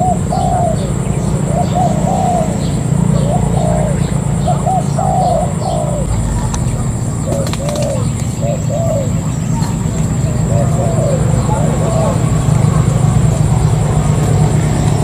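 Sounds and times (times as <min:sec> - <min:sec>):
dove cooing: 0:00.0 - 0:15.0
steady low rumble: 0:00.0 - 0:15.0
thin high whine: 0:06.0 - 0:09.8.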